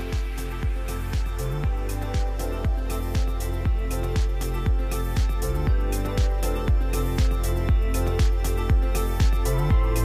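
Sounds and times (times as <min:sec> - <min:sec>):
held bass notes: 0:00.0 - 0:10.0
kick drum beat: 0:00.0 - 0:10.0.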